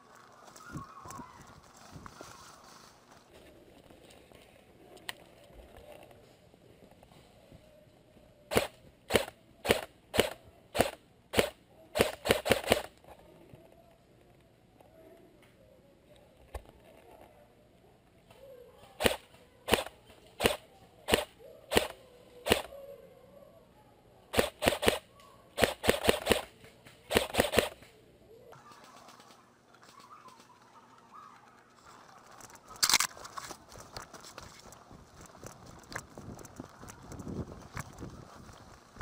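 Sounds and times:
airsoft gunshots: 8.5 - 12.9, 19.0 - 22.7, 24.3 - 25.0, 25.6 - 26.5, 27.1 - 27.8.

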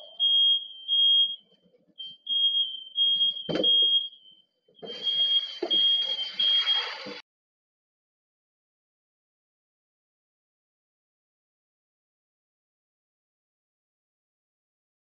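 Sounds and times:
smoke alarm beeping: 0.0 - 7.2.

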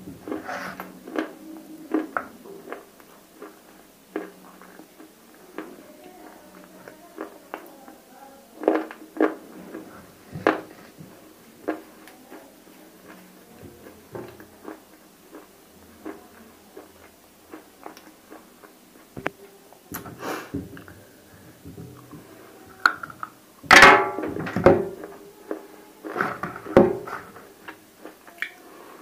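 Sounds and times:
chewing crunchy clay: 13.8 - 19.1.

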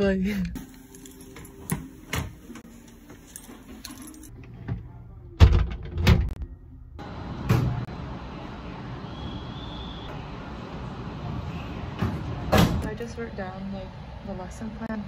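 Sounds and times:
keys jingling: 0.7 - 2.0, 2.8 - 4.3.

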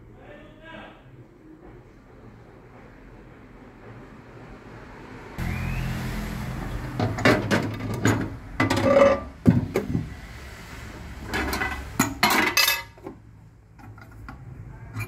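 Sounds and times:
low hum: 5.4 - 7.2
glass plate clinking: 11.5 - 13.0.

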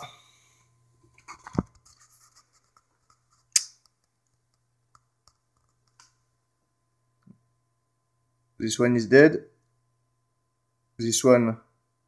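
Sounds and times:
sharp click: 3.5 - 4.0.

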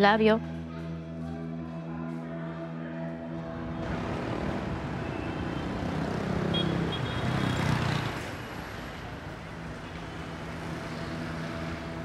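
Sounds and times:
vehicle passing by: 3.5 - 12.0.

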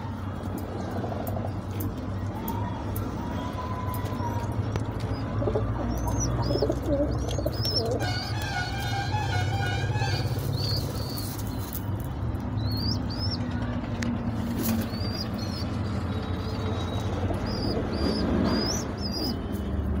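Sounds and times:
pigeons chirping: 4.0 - 13.5, 14.5 - 19.5.

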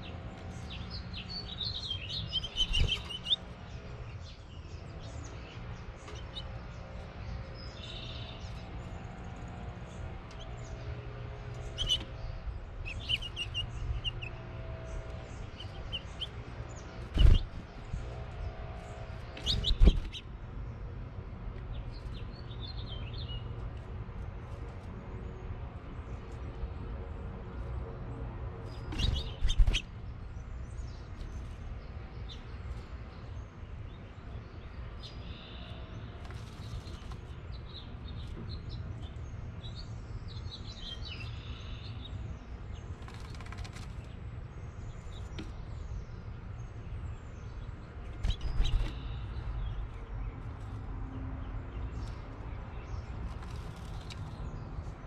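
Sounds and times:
steady low hum: 0.0 - 40.8
finches chirping: 0.7 - 3.4, 11.6 - 17.6, 28.7 - 29.9, 47.4 - 50.0.

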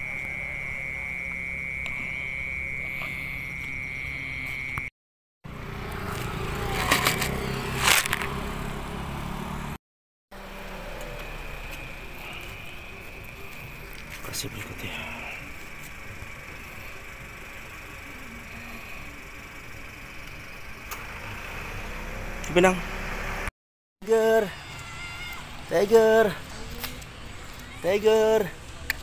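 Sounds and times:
night insects trilling: 0.0 - 4.9, 10.4 - 22.4
low hum of traffic: 0.0 - 29.0.

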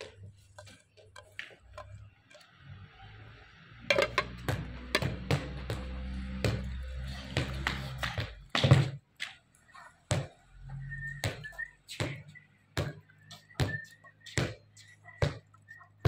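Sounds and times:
bowls knocking and tapping: 3.9 - 5.3.

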